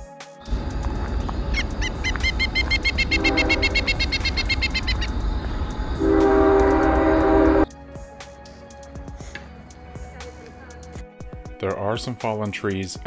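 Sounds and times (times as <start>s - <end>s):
rapid high chirps: 0.5s - 6.1s
train horn chord: 0.5s - 7.7s
train low rumble: 0.5s - 7.7s.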